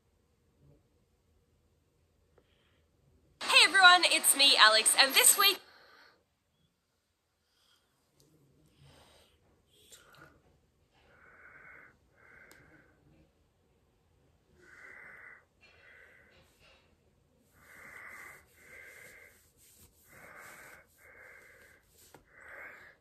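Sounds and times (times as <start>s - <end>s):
person breathing: 8.7s - 13.3s, 14.6s - 16.7s, 17.4s - 23.0s.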